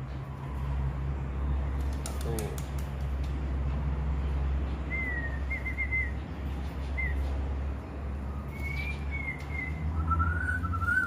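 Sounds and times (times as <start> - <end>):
wavering whistled notes: 4.9 - 6.2, 8.2 - 11.0.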